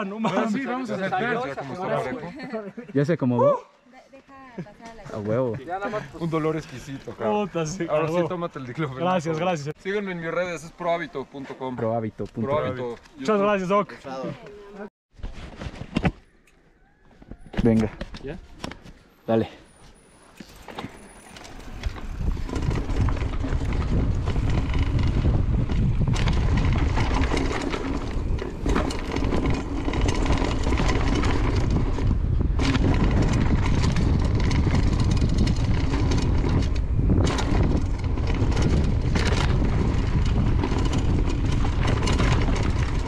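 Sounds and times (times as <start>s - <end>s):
tyres on loose dirt: 17.2s - 43.0s
bike rattling over bumps: 20.4s - 43.0s
wind rumble on microphone: 21.5s - 43.0s.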